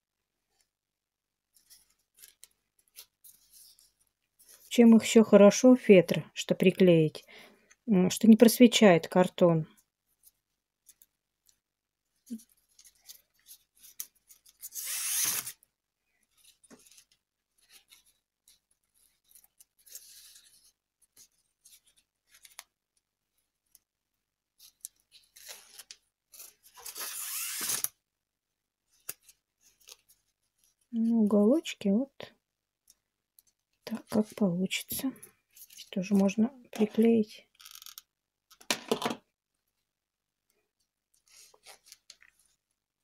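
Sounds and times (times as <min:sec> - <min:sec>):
ribbon rustling against felt: 0:01.4 - 0:05.0, 0:09.8 - 0:14.8, 0:16.2 - 0:26.9, 0:28.8 - 0:31.1, 0:32.9 - 0:37.1, 0:40.8 - 0:42.7.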